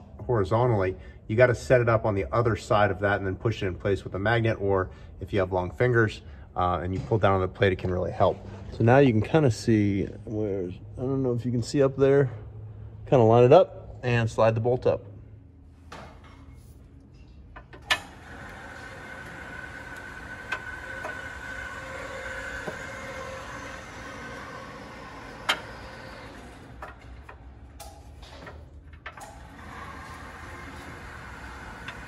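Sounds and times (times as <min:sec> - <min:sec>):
mechanical drone with faint whine: 0:07.0 - 0:32.0.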